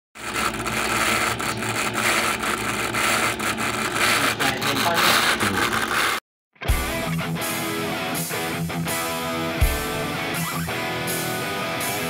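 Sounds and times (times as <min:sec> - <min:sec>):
laptop fan scraping: 0:00.2 - 0:06.2.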